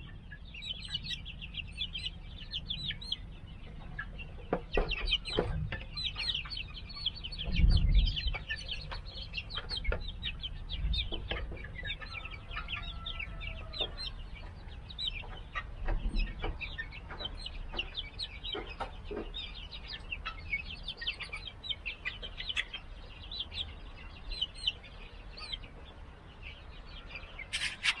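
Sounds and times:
chicks peeping: 0.0 - 28.0.

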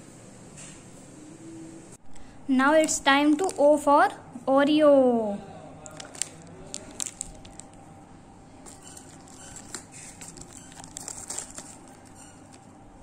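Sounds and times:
plastic wrapper crinkling and tearing: 3.3 - 3.6, 5.8 - 7.9, 8.6 - 12.7.

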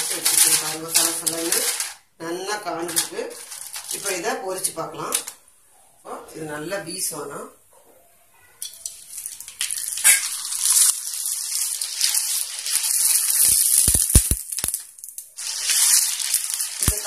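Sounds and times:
food sizzling in hot oil: 8.6 - 17.0.

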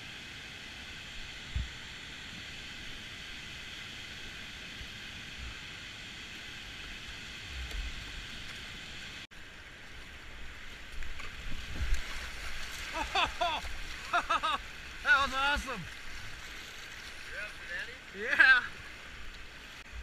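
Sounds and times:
whitewater and waterfall rushing: 11.6 - 20.0.

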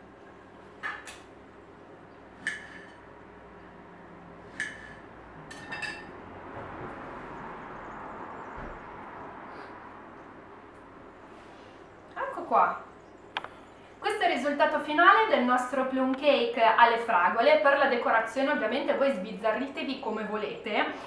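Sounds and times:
crockery clinking: 4.6 - 6.2.

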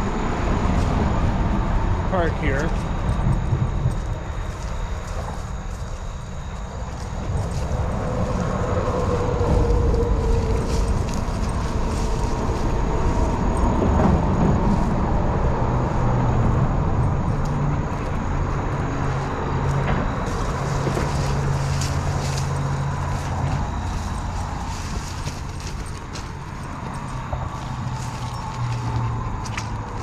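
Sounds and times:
highway traffic rumble: 0.0 - 30.0
low engine hum: 0.0 - 30.0.

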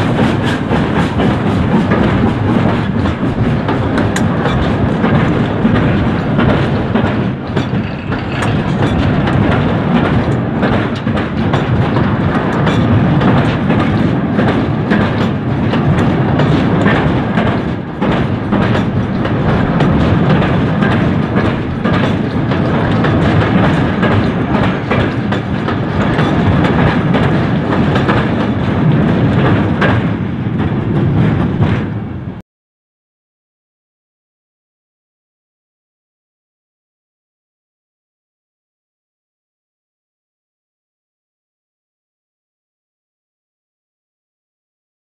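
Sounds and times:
train coaches clattering past: 0.0 - 32.4.

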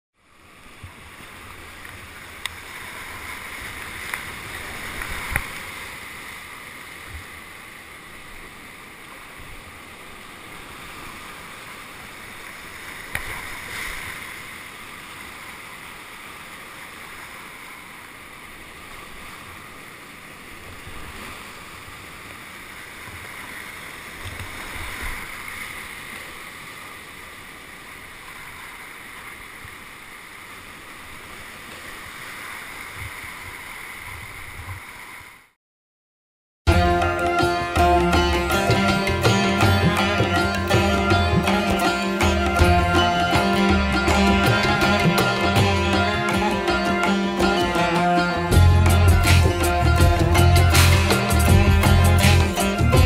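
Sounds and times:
churning river water: 0.2 - 35.5, 36.7 - 53.0
sharp knocks and low thumps: 48.5 - 53.0.

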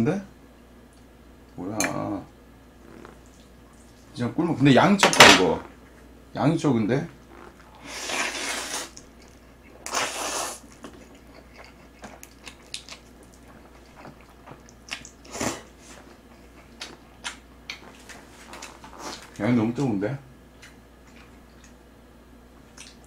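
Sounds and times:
person slurping noodles: 7.3 - 9.0, 9.8 - 10.6
wet chewing and smacking: 8.9 - 15.3, 16.0 - 19.9, 20.5 - 21.8, 22.6 - 23.0.

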